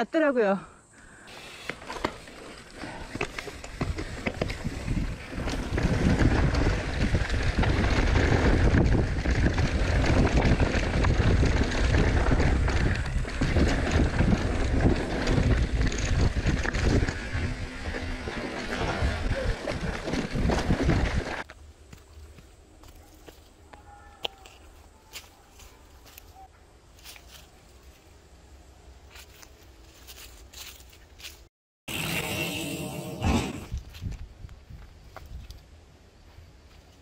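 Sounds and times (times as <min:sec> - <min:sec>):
bike rattles and knocks: 0:01.6 - 0:21.5
wind buffeting microphone: 0:03.6 - 0:21.4.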